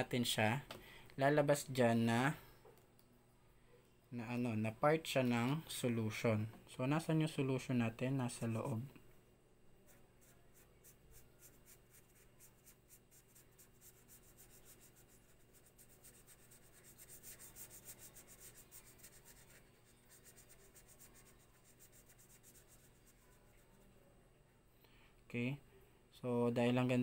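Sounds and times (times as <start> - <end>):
highlighter scratching on paper: 9.9 - 23.8.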